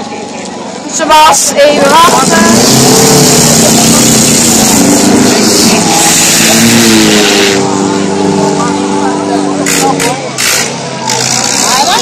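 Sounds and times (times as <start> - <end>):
car engines revving: 0.0 - 12.0
loud rushing noise: 1.2 - 12.0.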